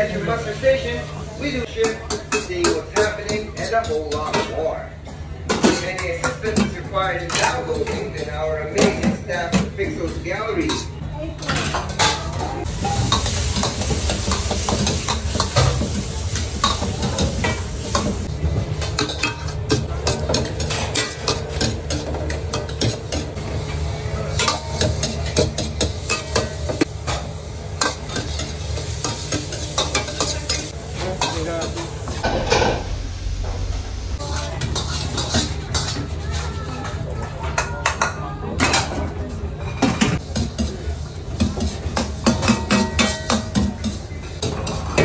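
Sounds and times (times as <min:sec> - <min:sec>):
food sizzling: 0:10.8 - 0:37.1
metal ladle scraping wok: 0:34.2 - 0:36.9.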